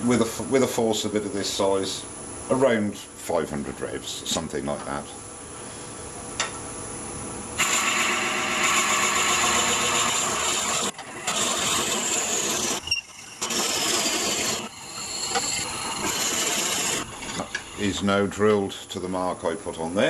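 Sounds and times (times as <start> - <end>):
drill bit rasping into wood: 7.6 - 17.8
wood lathe humming: 7.6 - 18.3.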